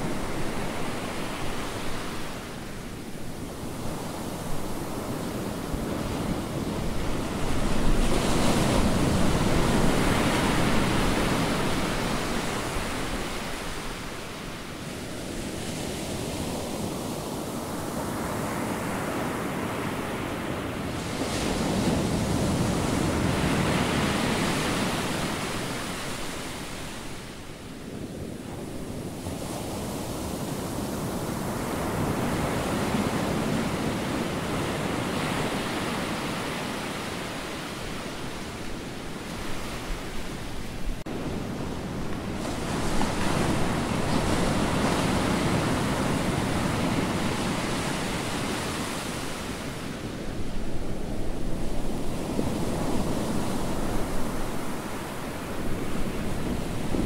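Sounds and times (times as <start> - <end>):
waves breaking on a beach: 0.0 - 57.0.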